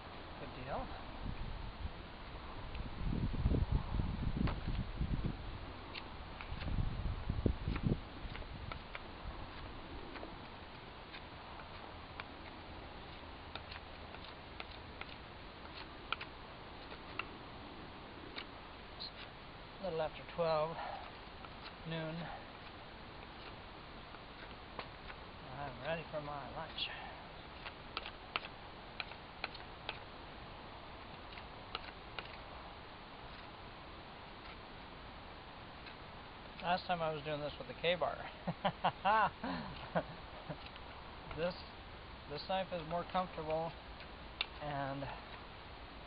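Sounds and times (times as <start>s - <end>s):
knife whittling wood clicks: 7.6s - 17.4s, 27.4s - 30.1s, 31.1s - 32.4s, 40.6s - 41.5s, 42.8s - 44.7s.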